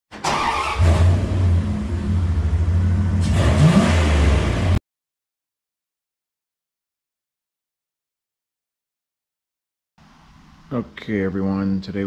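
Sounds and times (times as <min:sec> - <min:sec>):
car engine running and revving: 0:00.8 - 0:04.8.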